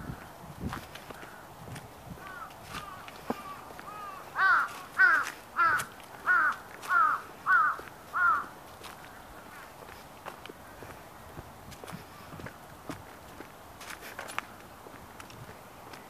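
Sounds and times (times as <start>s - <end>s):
crow cawing: 2.2s - 9.3s.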